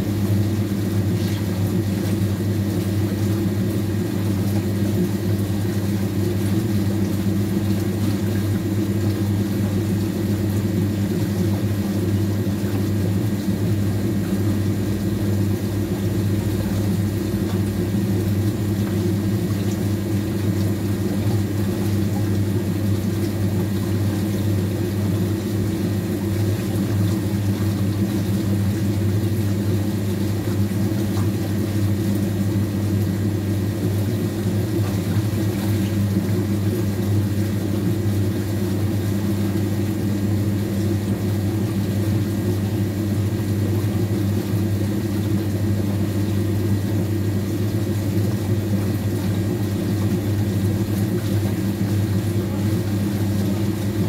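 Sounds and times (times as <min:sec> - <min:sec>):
washing machine motor hum: 0:00.0 - 0:54.0.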